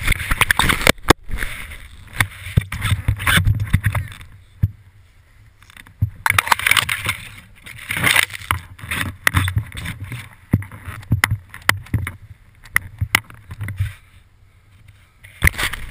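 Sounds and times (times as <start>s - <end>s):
sharp knocks and bumps: 2.2s - 4.8s, 8.0s - 13.9s.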